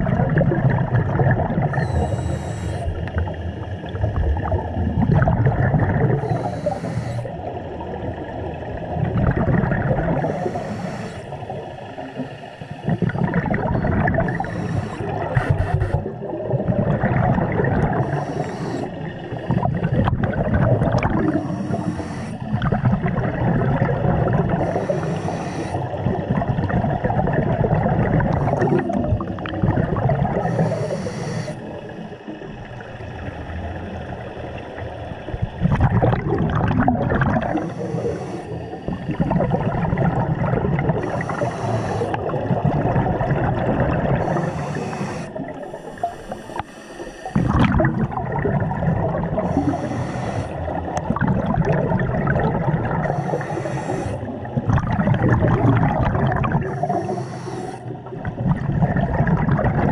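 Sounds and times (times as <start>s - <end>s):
bubbling exhaust: 0.0s - 59.9s
regulator hiss on inhale: 1.7s - 3.2s, 6.2s - 7.5s, 10.2s - 13.2s, 14.2s - 16.2s, 17.9s - 19.9s, 21.3s - 22.6s, 24.6s - 26.0s, 30.4s - 32.3s, 37.5s - 39.4s, 41.0s - 42.4s, 44.2s - 47.5s, 49.4s - 51.0s, 53.0s - 54.5s, 56.6s - 58.1s.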